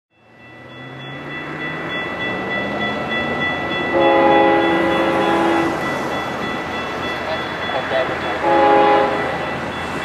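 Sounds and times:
diesel locomotive engine drone: 0.1 - 10.0
high ringing tones: 0.2 - 10.0
locomotive horn chord: 3.9 - 5.9, 7.7 - 9.5.

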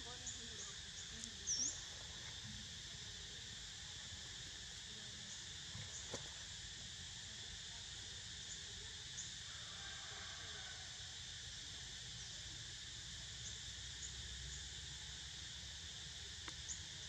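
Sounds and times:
cicadas droning: 0.0 - 17.0
faint click: 16.4 - 16.6.

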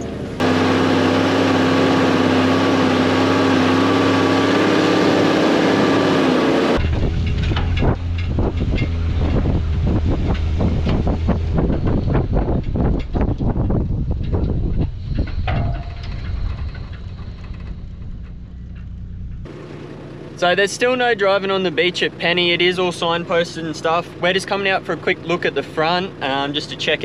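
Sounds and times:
vehicle driving over rough ground: 0.0 - 27.0
knocks and rattles: 6.8 - 19.6.

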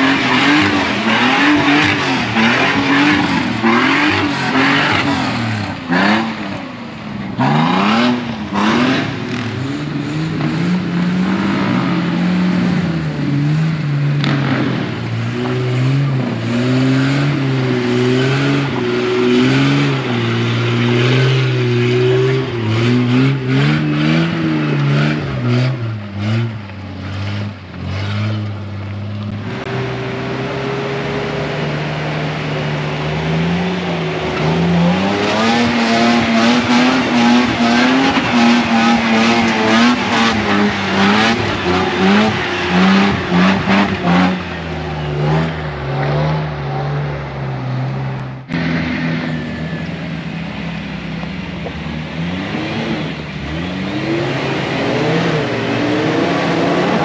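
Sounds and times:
off-road engines revving: 0.0 - 57.0.

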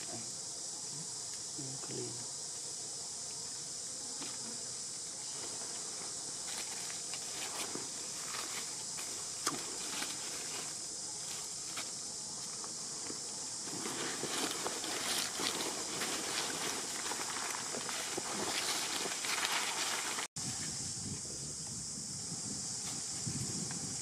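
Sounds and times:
high-pitched insect drone: 0.0 - 24.0
dry leaves crackling and rustling: 6.5 - 11.9, 13.6 - 20.3.

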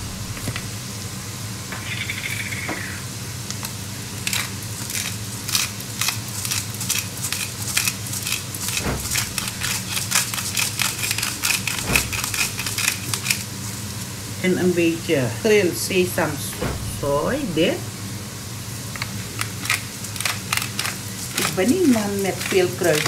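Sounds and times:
low steady hum: 0.0 - 3.2, 8.7 - 9.9, 11.7 - 20.2
spice grinder crunching clicks: 3.5 - 13.5, 18.9 - 23.0.

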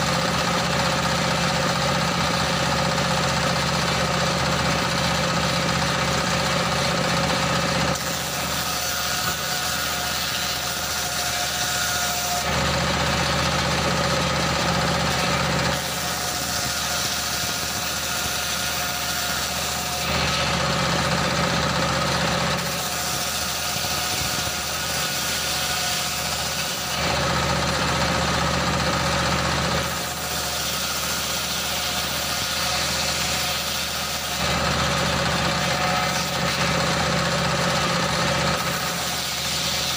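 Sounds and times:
diesel engine beat: 0.0 - 8.1, 12.4 - 15.9, 19.7 - 22.7, 26.3 - 29.9, 34.4 - 38.8
circular saw cutting wood: 0.0 - 39.9.

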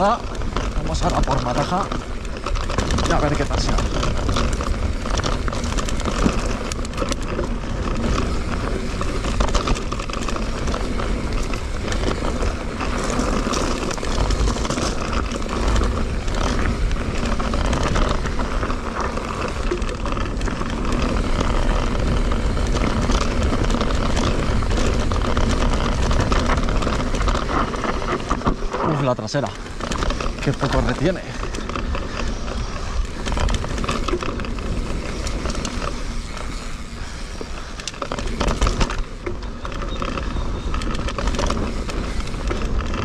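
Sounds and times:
bike rattling and clattering: 0.0 - 43.0
tyre noise on dirt: 0.0 - 43.0.

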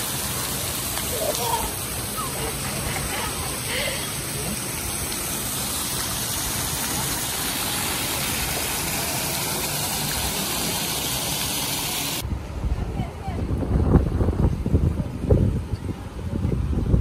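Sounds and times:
water spraying and splashing: 0.0 - 12.2.

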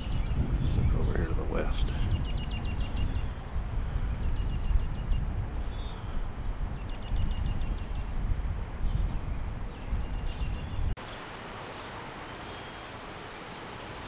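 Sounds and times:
songbird trilling: 2.0 - 6.2, 9.7 - 13.0.

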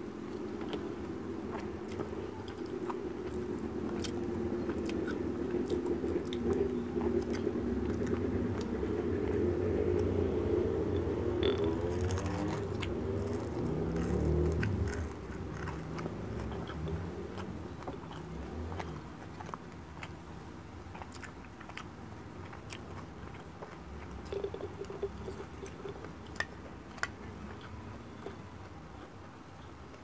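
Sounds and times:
person chewing food: 0.0 - 30.0
mouth clicks: 10.9 - 20.2.

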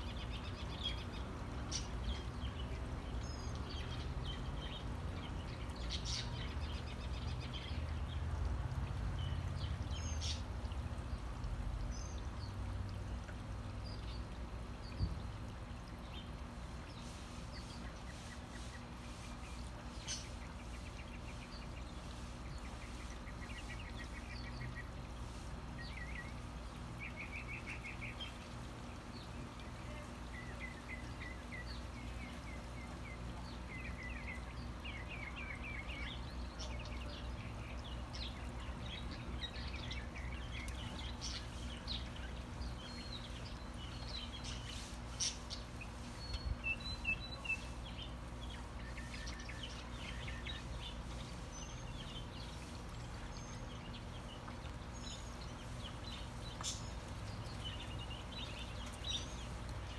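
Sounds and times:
low steady hum: 0.0 - 59.9
small birds chirping: 0.0 - 59.9.

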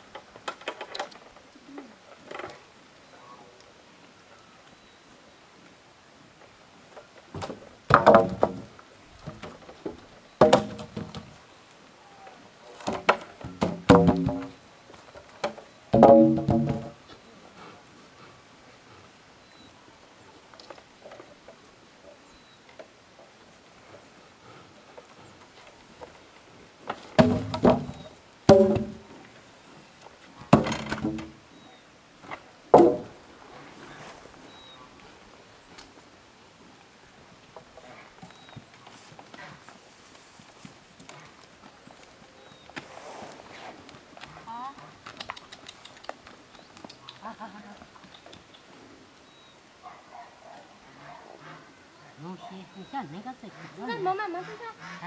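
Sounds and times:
hollow wooden knocks of poles: 7.3 - 11.3, 12.8 - 14.6, 15.2 - 17.0, 26.8 - 29.2, 30.4 - 31.4, 32.7 - 33.2.

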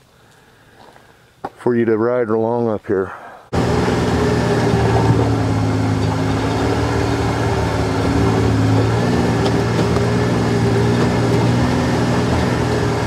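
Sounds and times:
vehicle engine running at low speed: 3.5 - 13.0.

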